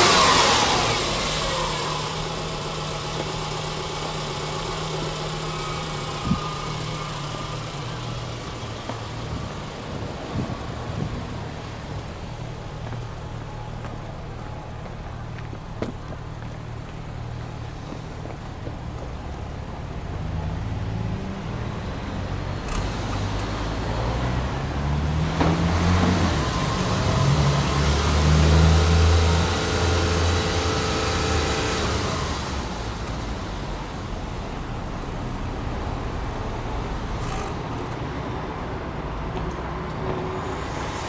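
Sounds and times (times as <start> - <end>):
car engine revving: 0.0 - 11.2, 22.6 - 33.9.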